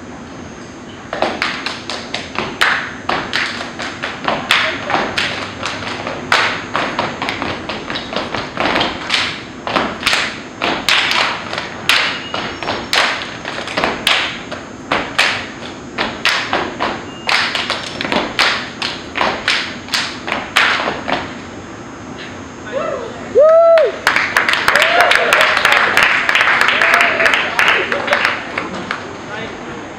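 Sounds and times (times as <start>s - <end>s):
rhythmic stomping on brick floor: 1.1s - 21.4s
people clapping: 1.2s - 12.2s, 12.9s - 14.4s, 15.0s - 16.6s, 17.2s - 21.0s, 23.5s - 29.1s.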